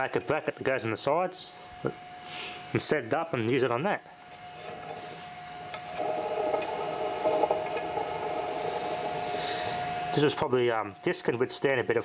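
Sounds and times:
ac compressor whining: 4.1s - 11.0s
electric motor running: 5.8s - 10.2s.

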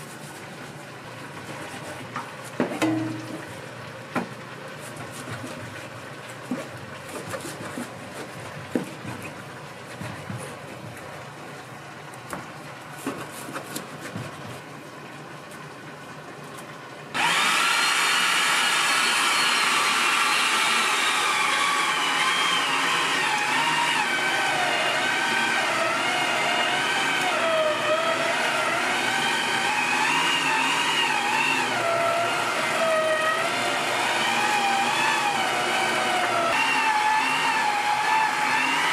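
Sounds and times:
kitchen machine motor whining: 17.2s - 38.9s.

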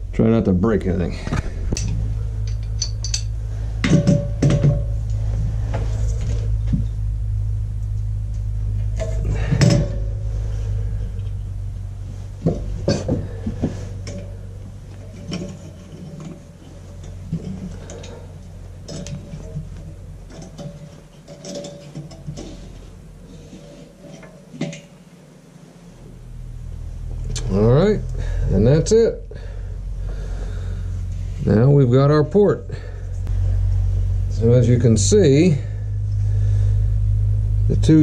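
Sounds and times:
steady low hum: 0.0s - 38.0s
pipe wrench clanking on metal: 1.7s - 5.0s, 9.0s - 10.2s, 12.4s - 22.8s.

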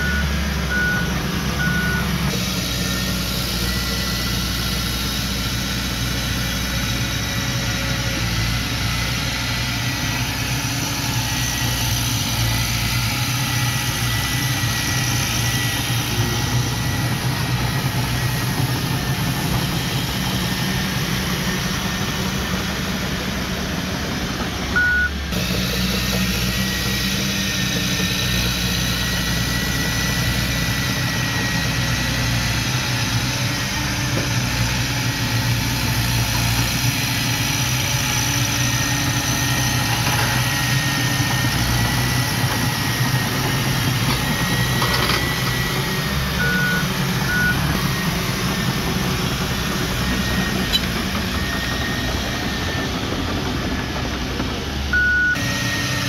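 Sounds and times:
short beeps: 0.0s - 2.1s, 24.8s - 25.2s, 55.0s - 55.4s
bulldozer diesel engine running: 0.0s - 56.0s.

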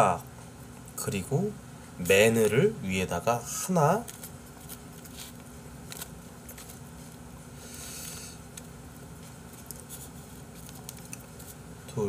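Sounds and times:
steady background hum: 0.0s - 12.0s
soft rustling of food: 3.6s - 11.9s.

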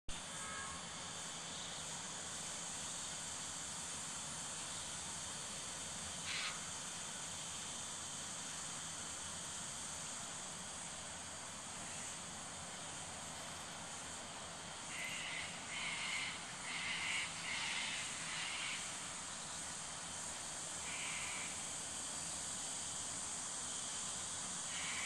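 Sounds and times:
insect chirring: 6.2s - 6.7s, 13.5s - 25.0s.

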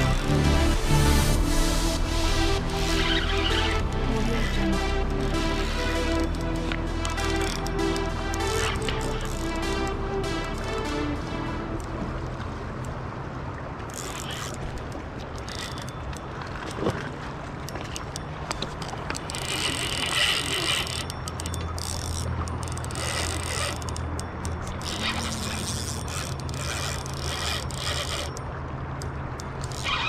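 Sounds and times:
fishing reel clicking and buzzing: 0.0s - 11.0s, 13.9s - 16.2s, 18.0s - 30.0s
steady low rumble: 0.0s - 13.8s.

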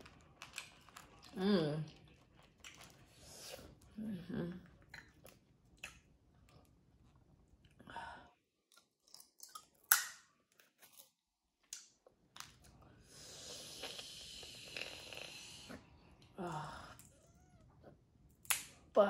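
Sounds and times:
sucking slurp: 13.2s - 16.0s.

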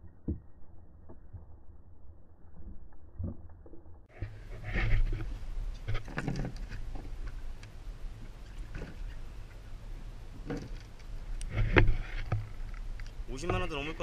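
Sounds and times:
boat engine hum: 4.1s - 14.0s.

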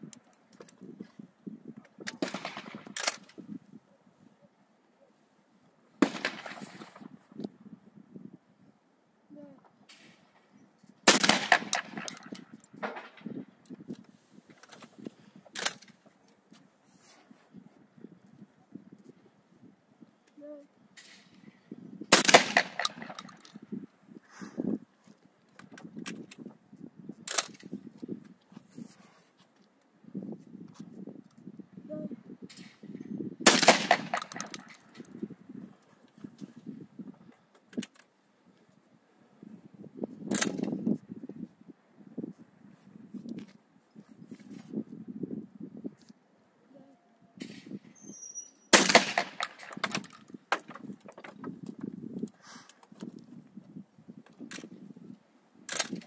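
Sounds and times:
shotgun shot: 6.0s - 7.0s, 11.1s - 13.2s, 22.1s - 23.3s, 33.4s - 34.7s, 48.7s - 49.8s.

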